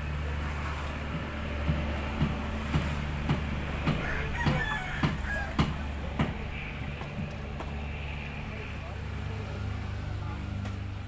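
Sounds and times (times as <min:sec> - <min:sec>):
hammer blows on wood: 0:01.1 - 0:07.8
rooster crowing: 0:04.0 - 0:05.7.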